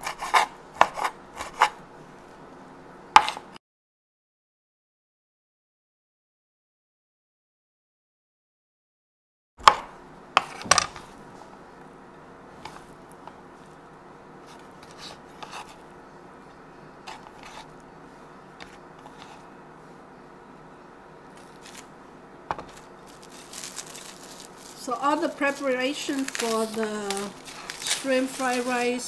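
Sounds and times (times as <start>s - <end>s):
faint steady hum: 0.0s - 3.6s, 9.6s - 29.0s
knife chopping on wooden board: 3.2s - 3.4s, 9.6s - 10.8s.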